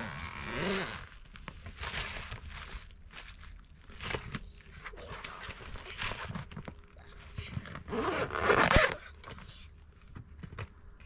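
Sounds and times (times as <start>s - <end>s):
suitcase zipper rasping: 0.0s - 1.1s, 7.6s - 9.1s.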